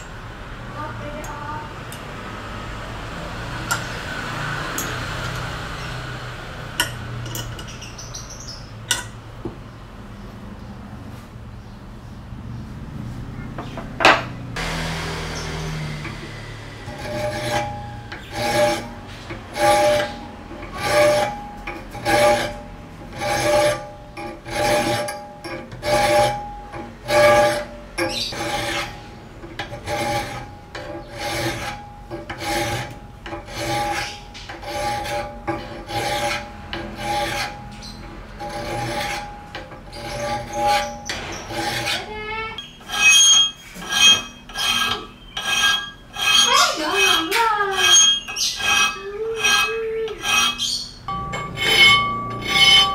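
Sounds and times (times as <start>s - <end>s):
file rasping on steel blade: 15.3s - 52.9s.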